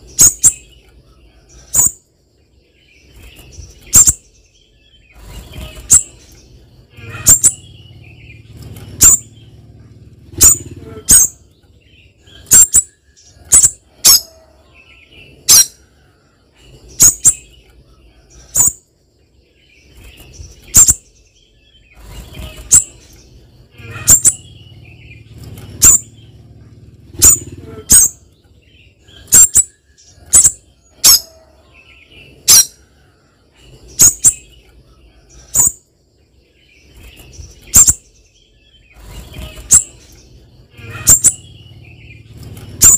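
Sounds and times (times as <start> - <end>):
bird giving sharp high calls: 6.9 - 8.1, 8.9 - 9.4, 10.3 - 11.5, 12.3 - 14.5, 15.4 - 15.8, 23.8 - 26.2, 27.1 - 28.3, 29.1 - 31.5, 32.4 - 32.8, 40.7 - 42.2.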